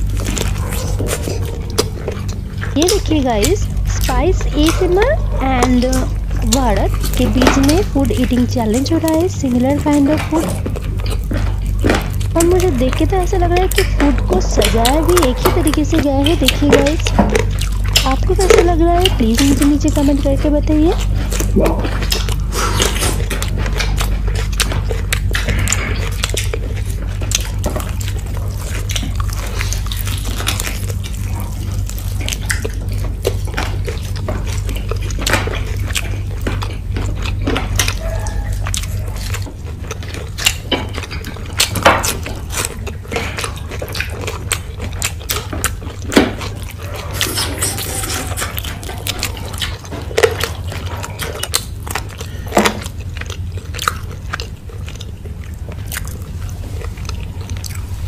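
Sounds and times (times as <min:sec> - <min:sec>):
lip smacks: 0:00.0 - 0:58.0
low steady hum: 0:00.0 - 0:58.0
wet chewing: 0:00.0 - 0:58.0.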